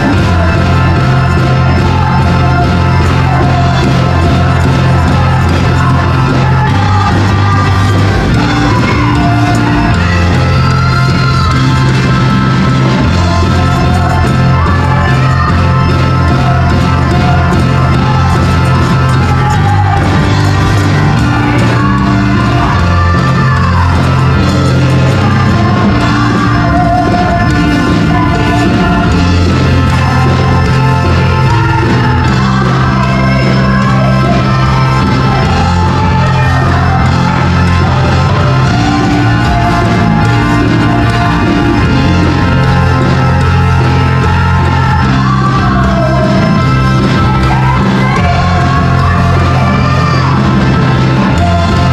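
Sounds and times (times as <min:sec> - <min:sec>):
band with held bass line: 0:00.0 - 0:51.9
women singing together: 0:13.1 - 0:42.6.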